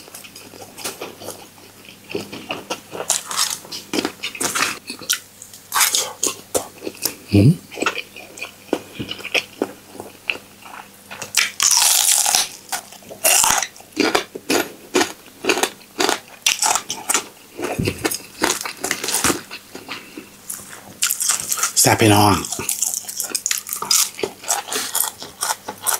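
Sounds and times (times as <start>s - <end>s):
person chewing with wet smacks: 0.0s - 11.8s, 22.4s - 25.9s.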